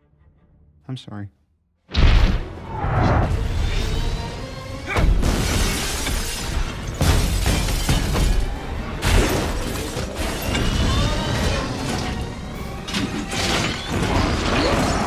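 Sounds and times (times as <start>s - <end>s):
glass shattering: 5.2s - 10.8s.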